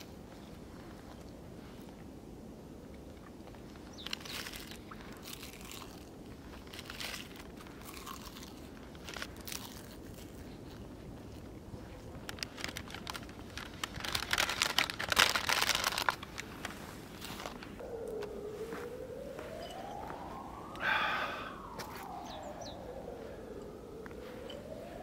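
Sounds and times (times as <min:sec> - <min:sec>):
crunching seaweed snack: 0:03.9 - 0:17.7
packet crinkling: 0:04.0 - 0:10.8, 0:11.8 - 0:17.7.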